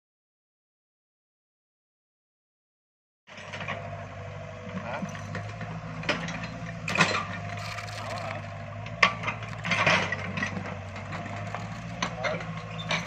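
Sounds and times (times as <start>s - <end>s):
diesel engine running: 3.3s - 13.0s
metallic knocks and scrapes: 4.9s - 13.0s.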